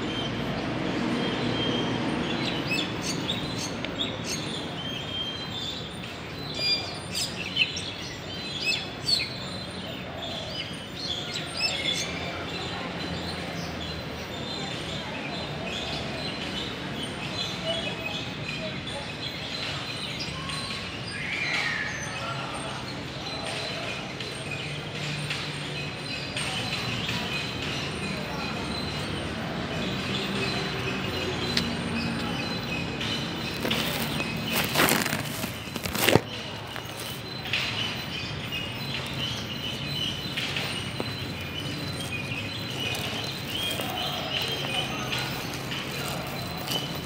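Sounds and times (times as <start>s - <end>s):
outdoor background noise: 0.0s - 47.0s
bird chirp: 23.3s - 47.0s.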